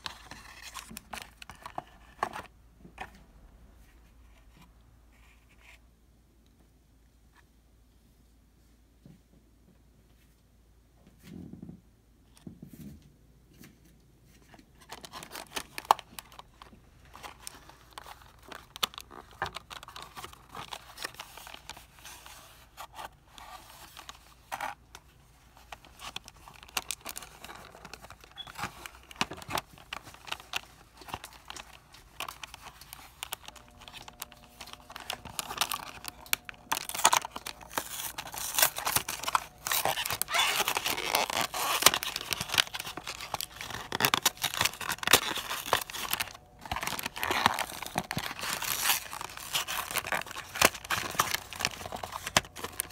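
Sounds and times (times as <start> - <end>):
cardboard boxes crinkling and tapping: 26.0 - 52.9
box flap tearing open: 33.2 - 52.9.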